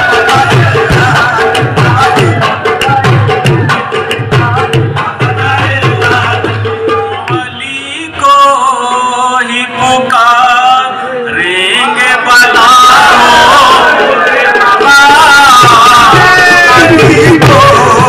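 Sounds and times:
tabla strokes: 0:12.5 - 0:18.0.

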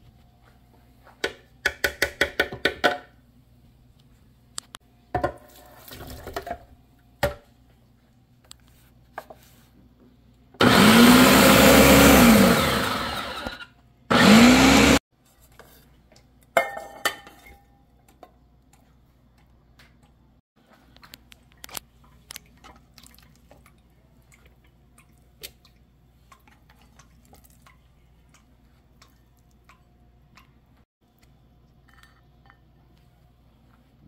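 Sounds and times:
kitchenware clicks and clatter: 0:05.1 - 0:07.4, 0:15.4 - 0:18.4
blender motor running: 0:10.6 - 0:15.0.

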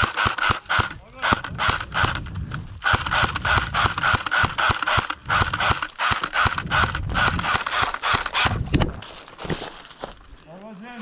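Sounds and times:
sharp clicks and crackles: 0:00.0 - 0:09.1
clothing brushing through undergrowth: 0:09.0 - 0:11.0.

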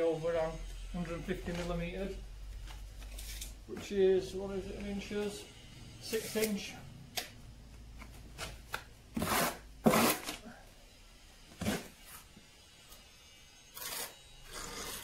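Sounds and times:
trowel scraping mortar: 0:09.2 - 0:10.4, 0:13.7 - 0:15.0.

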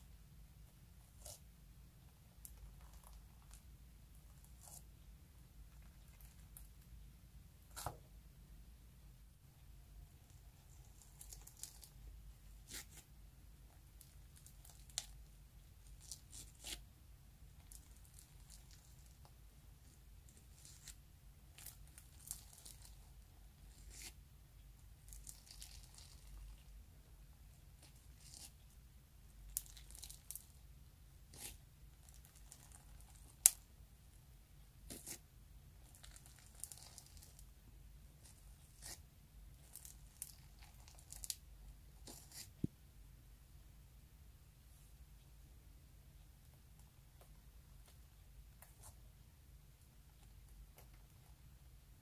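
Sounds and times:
slime crackling: 0:10.6 - 0:12.0, 0:35.8 - 0:37.4
metal spoon scooping slime: 0:31.3 - 0:33.5, 0:34.8 - 0:35.2.

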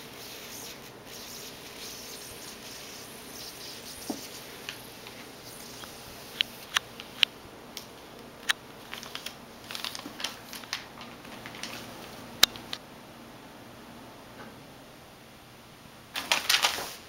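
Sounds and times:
paper crackling on carpet: 0:08.8 - 0:12.2, 0:16.2 - 0:17.0.

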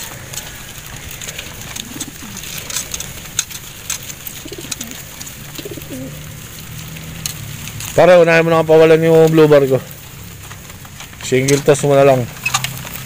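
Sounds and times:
pigeons cooing: 0:00.0 - 0:08.0.

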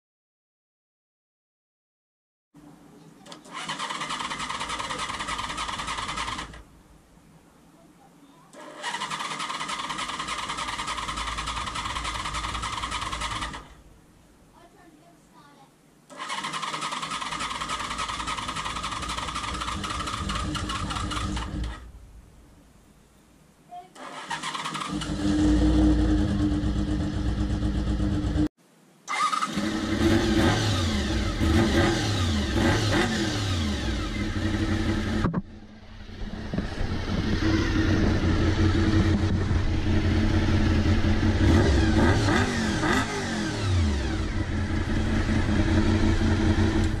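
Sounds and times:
motorcycle engine revving: 0:03.4 - 0:06.6, 0:08.6 - 0:13.8, 0:16.1 - 0:21.9, 0:24.0 - 0:28.5, 0:29.1 - 0:47.0.

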